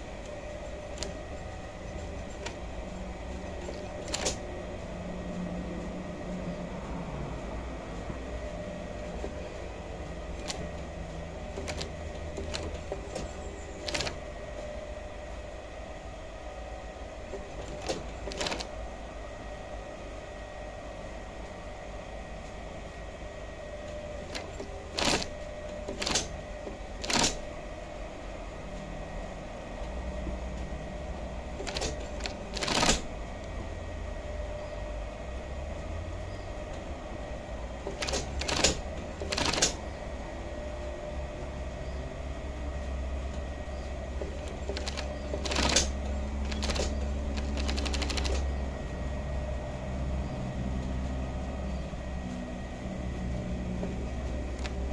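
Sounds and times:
sewing machine motor hum: 0:00.0 - 0:05.6, 0:08.4 - 0:15.0, 0:17.1 - 0:18.8, 0:23.9 - 0:27.5, 0:31.0 - 0:33.3, 0:37.7 - 0:40.0, 0:44.1 - 0:48.7, 0:53.9 - 0:54.9
sharp clicks: 0:11.6 - 0:14.2, 0:24.3 - 0:25.3, 0:27.0 - 0:27.4, 0:38.0 - 0:39.8, 0:44.4 - 0:48.5.

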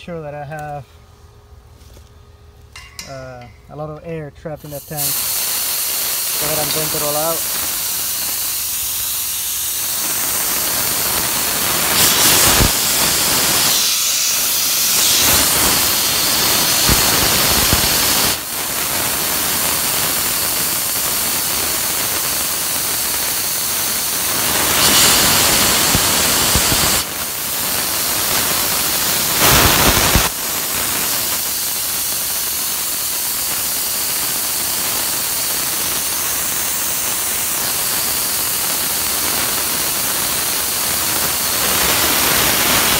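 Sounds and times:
gas hissing from vent: 0:02.8 - 0:42.9.

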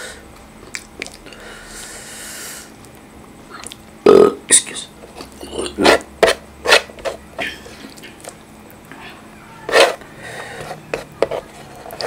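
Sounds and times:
mouth eating sounds: 0:00.6 - 0:01.4, 0:03.5 - 0:06.0
hand mashing wet food: 0:09.6 - 0:12.0.

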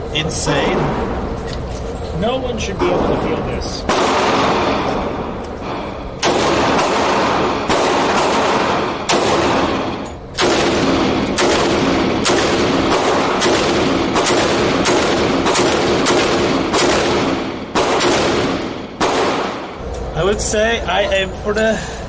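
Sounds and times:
gunshots ringing indoors: 0:03.8 - 0:19.9.

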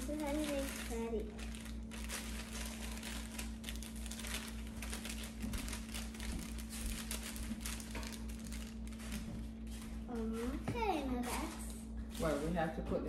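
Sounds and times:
plastic bag crinkling: 0:00.0 - 0:09.8
steady low hum: 0:00.0 - 0:13.0.

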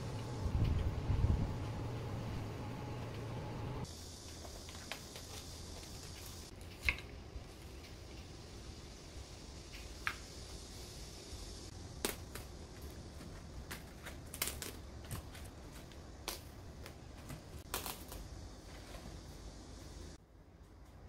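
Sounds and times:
low steady hum: 0:00.0 - 0:09.7
cabbage leaves snapping: 0:13.6 - 0:18.3.

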